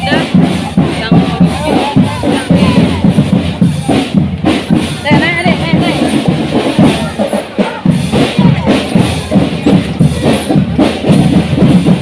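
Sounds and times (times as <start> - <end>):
bass drum: 0.0 - 12.0
drum band playing: 0.0 - 12.0.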